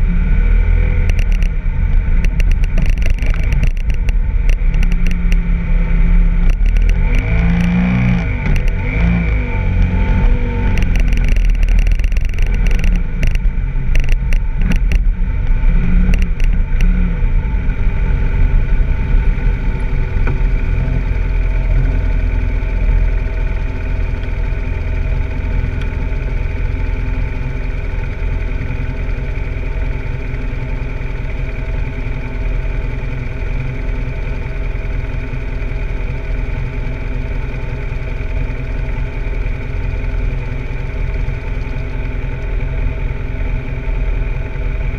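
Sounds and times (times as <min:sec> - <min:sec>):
motorcycle engine running: 0:00.0 - 0:44.9
scattered clicks: 0:01.0 - 0:01.6, 0:02.2 - 0:05.5, 0:06.4 - 0:10.0, 0:10.6 - 0:17.0.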